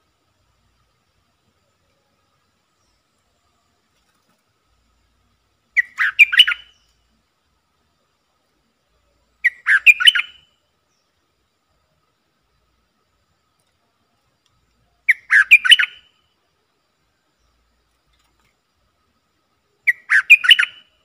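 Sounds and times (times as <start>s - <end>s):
bulbul chattering song: 5.6s - 7.1s, 9.3s - 10.6s, 14.9s - 16.3s, 19.7s - 21.0s.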